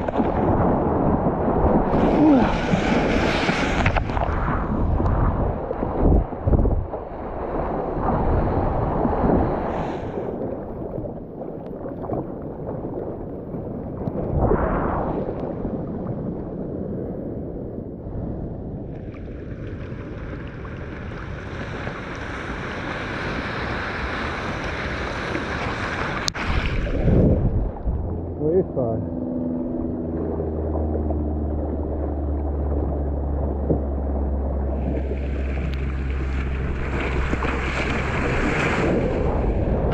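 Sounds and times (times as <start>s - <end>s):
seawater sloshing and splashing: 0.0s - 15.8s, 18.9s - 28.4s, 29.0s - 39.9s
wind on microphone: 0.0s - 39.9s
whitewater rushing: 1.8s - 4.4s, 34.6s - 39.9s.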